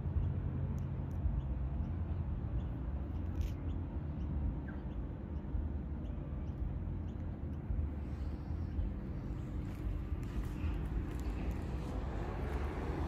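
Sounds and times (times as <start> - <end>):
low outdoor rumble: 0.0 - 13.0
bird chirps: 1.4 - 9.5.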